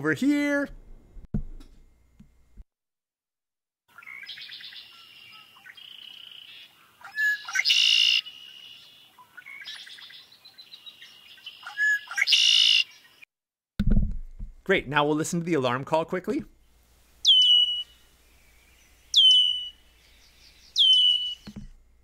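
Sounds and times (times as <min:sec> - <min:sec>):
blackbird singing trill: 0:03.9 - 0:13.2, 0:17.2 - 0:21.5.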